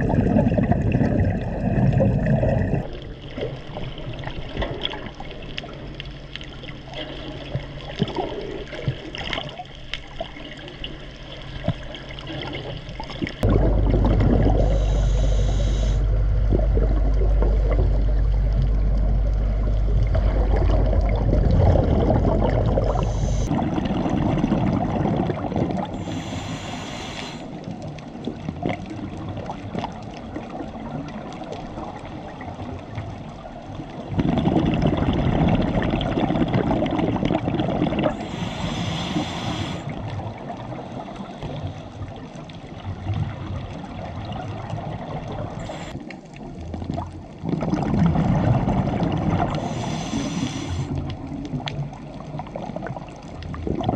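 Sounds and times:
bubbling exhaled air underwater: 0.0s - 53.9s
regulator hissing inhale: 14.5s - 16.4s, 22.9s - 23.5s, 26.0s - 27.6s, 38.1s - 40.1s, 45.6s - 46.0s, 49.6s - 51.1s.

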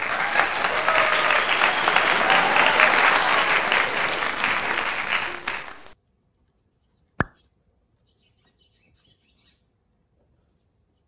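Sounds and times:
faint bird chirps: 6.2s - 11.0s.

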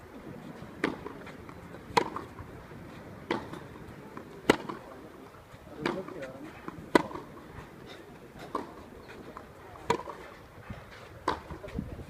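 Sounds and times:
tennis ball hit by racquet: 0.7s - 2.5s, 3.2s - 5.0s, 5.7s - 7.4s, 8.4s - 10.3s, 11.2s - 11.7s.

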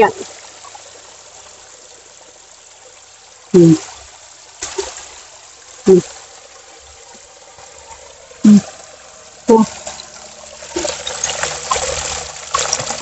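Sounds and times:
water trickling down steps: 0.0s - 13.0s
person speaking short syllables: 3.6s - 3.8s, 5.9s - 6.1s, 9.5s - 9.7s.

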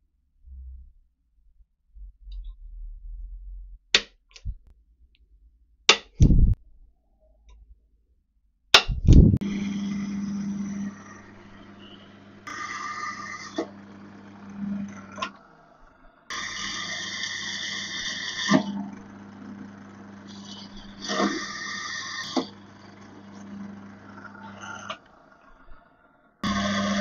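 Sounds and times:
pillar drill boring into steel: 9.4s - 27.0s.

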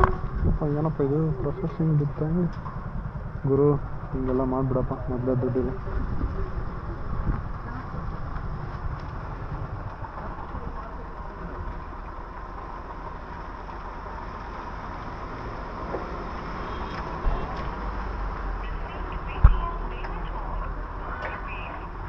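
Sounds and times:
vehicle engine rumble: 0.0s - 22.0s
faint voices: 3.3s - 13.1s, 18.5s - 22.0s.

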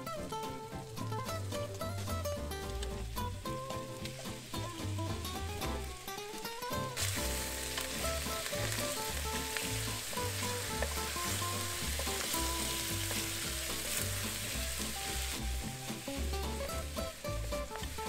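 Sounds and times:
chicken wings sizzling in pot: 0.0s - 18.0s
wooden spoon stirring: 7.0s - 18.0s.

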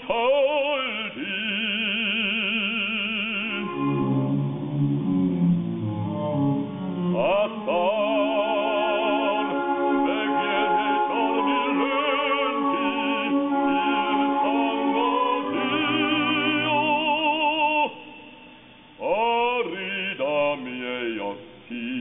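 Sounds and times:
man singing with vibrato: 0.0s - 5.5s, 7.1s - 22.0s.

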